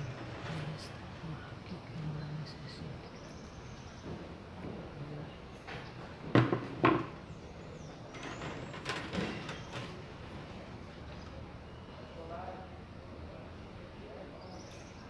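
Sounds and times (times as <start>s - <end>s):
sharp knocks: 6.2s - 7.2s.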